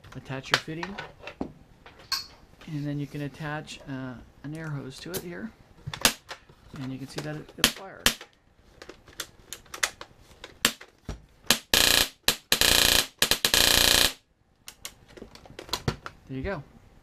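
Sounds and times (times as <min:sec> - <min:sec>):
airsoft gun full-auto bursts: 0:11.5 - 0:14.2.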